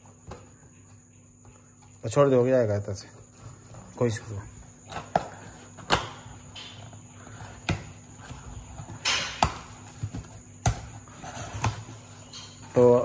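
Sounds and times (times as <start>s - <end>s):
cardboard box knocks and snaps: 8.9s - 11.8s.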